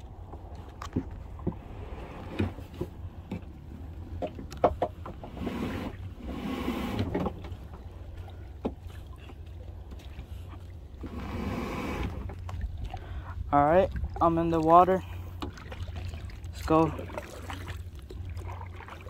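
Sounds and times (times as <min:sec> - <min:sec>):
kayak swishing through water: 0:00.0 - 0:19.0
low rumble: 0:07.3 - 0:19.0.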